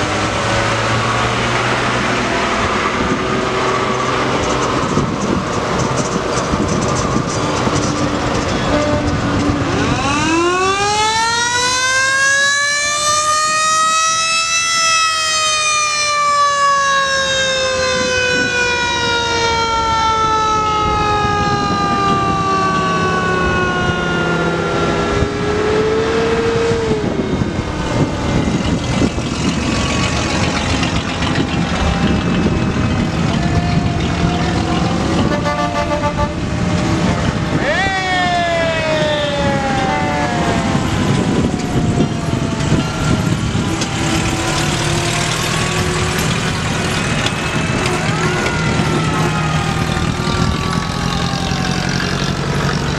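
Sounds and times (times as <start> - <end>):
truck engines running: 0.0 - 52.9.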